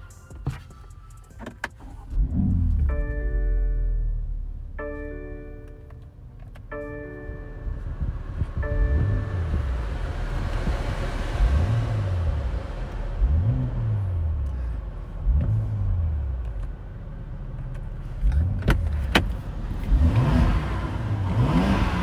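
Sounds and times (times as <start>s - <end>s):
exhaust cracks: 1.3s - 4.8s
car engine revving: 1.8s - 22.0s.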